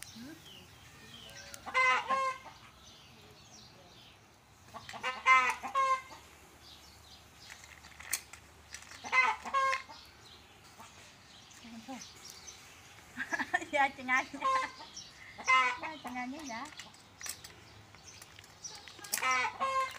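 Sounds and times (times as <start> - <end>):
animal calls: 18.6 - 19.9.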